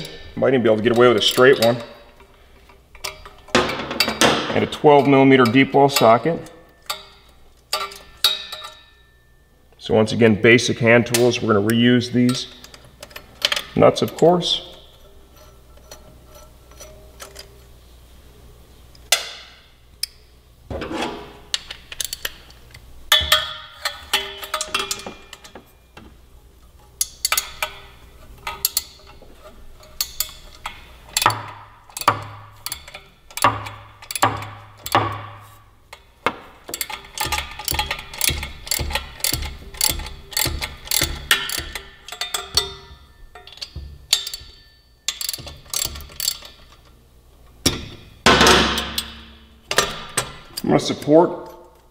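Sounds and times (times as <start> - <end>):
socket ratchet clicking: 29.8 - 35.1, 35.9 - 46.9.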